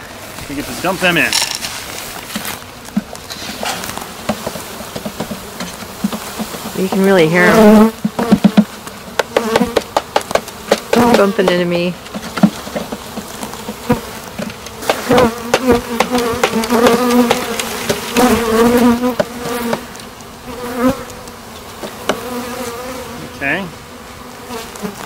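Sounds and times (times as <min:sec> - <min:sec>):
bees buzzing loudly: 0:00.0 - 0:25.0
sharp knocks on wooden cage: 0:03.0 - 0:07.1, 0:07.9 - 0:19.9, 0:21.8 - 0:22.4.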